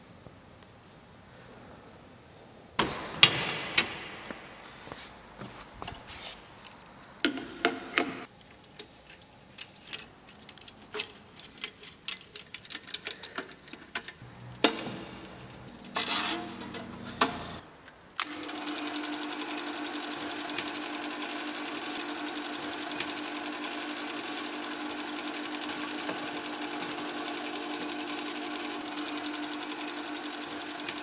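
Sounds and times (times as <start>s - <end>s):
film projector clicks and clatter: 18.2s - 31.0s.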